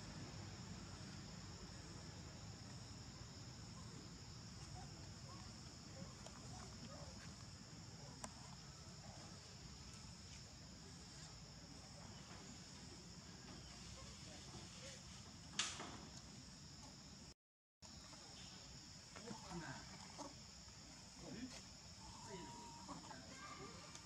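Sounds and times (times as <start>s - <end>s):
sharp click: 15.5s - 15.9s.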